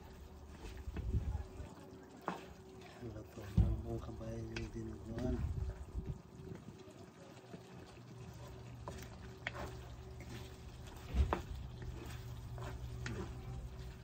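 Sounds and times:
wooden spoon stirring thick stew: 0.0s - 14.0s
steady low hum: 8.0s - 14.0s.

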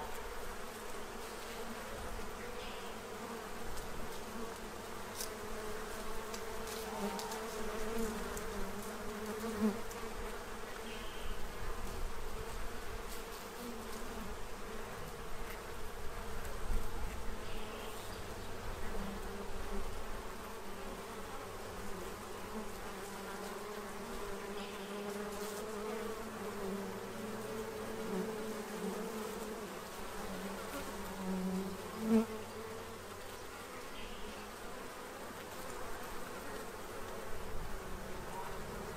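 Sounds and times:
honey bees buzzing: 0.0s - 38.9s.

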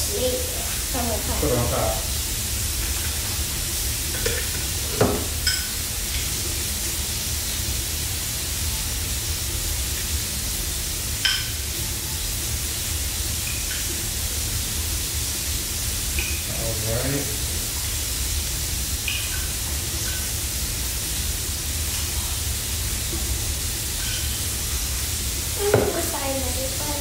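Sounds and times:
burgers sizzling on griddle: 0.0s - 27.0s
spoon clinking against glass bowl: 5.4s - 5.7s, 11.2s - 11.5s.

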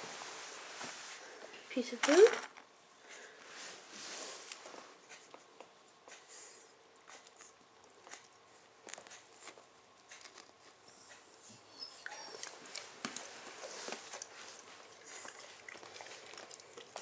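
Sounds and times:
dog chewing and licking: 7.0s - 17.0s.

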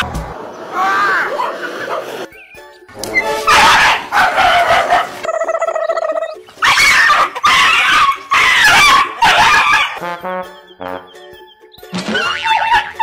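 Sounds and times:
dogs barking and yelping: 1.2s - 2.3s, 3.1s - 10.0s, 12.0s - 13.0s.

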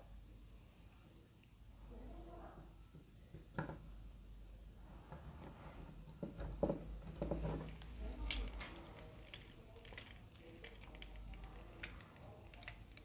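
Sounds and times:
plastic parts clicking and knocking: 6.1s - 13.0s.

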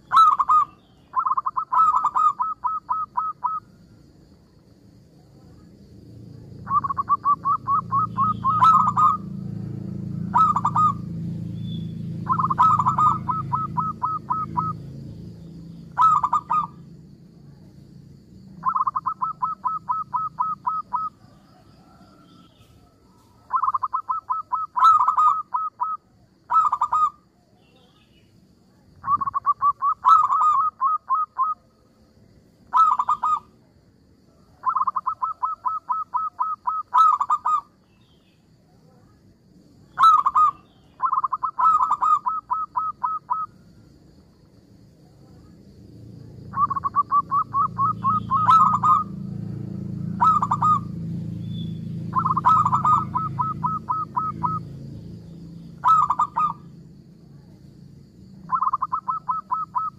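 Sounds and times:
dove cooing: 0.0s - 3.7s, 6.6s - 11.2s, 12.1s - 15.0s, 15.8s - 16.9s, 18.6s - 27.2s, 28.9s - 31.7s, 32.7s - 33.5s, 34.6s - 37.7s, 40.0s - 43.6s, 46.4s - 49.3s, 50.0s - 51.0s, 52.0s - 54.8s, 55.7s - 56.7s, 58.5s - 59.9s.

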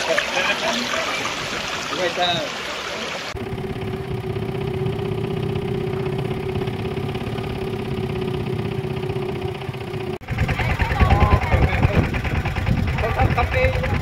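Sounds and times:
motorboat engine running: 3.3s - 14.0s.

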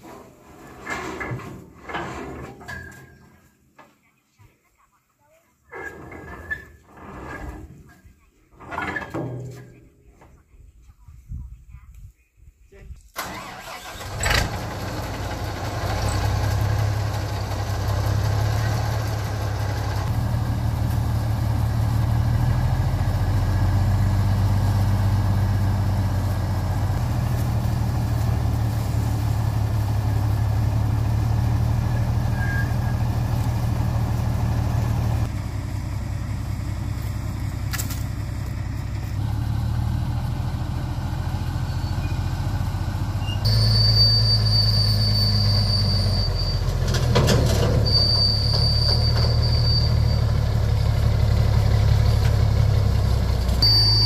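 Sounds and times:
vehicle engine running: 13.9s - 54.0s.

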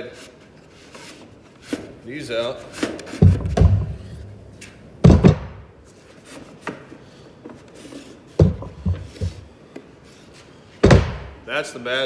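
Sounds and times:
heavy wooden thuds: 3.1s - 4.4s, 5.0s - 5.7s, 8.4s - 9.5s, 10.8s - 11.4s.

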